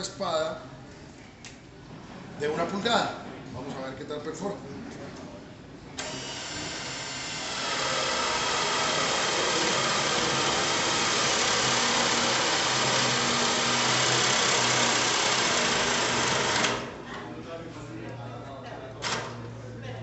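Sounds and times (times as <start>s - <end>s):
cordless drill boring into wood: 6.0s - 16.9s.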